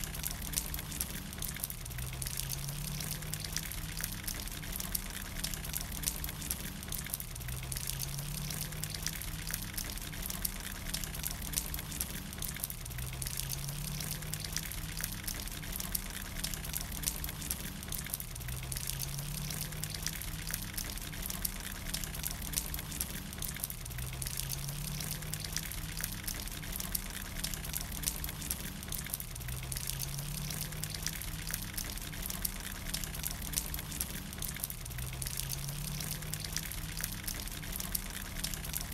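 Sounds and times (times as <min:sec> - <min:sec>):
rain falling on brick and leaves: 0:00.0 - 0:38.9.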